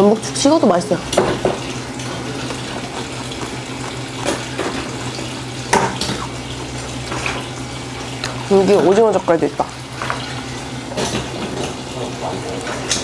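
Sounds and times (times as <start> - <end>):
wet chewing and mouth sounds: 1.6 - 8.5.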